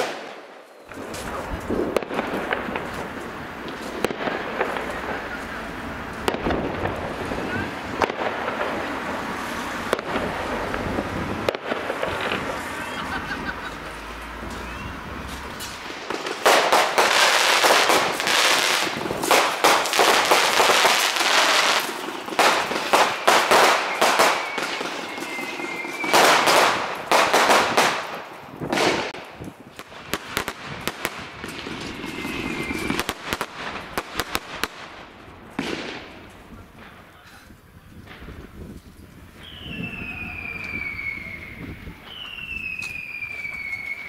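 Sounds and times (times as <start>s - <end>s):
fireworks crackling and banging: 0.0s - 44.0s
firework whistles: 3.8s - 28.1s, 30.2s - 33.8s, 39.3s - 44.0s.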